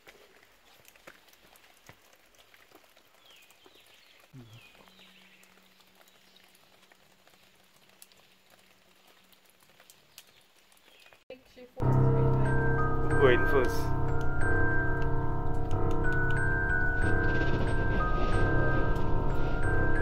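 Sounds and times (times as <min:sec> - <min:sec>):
soft ticks and crackles: 0:00.0 - 0:12.5.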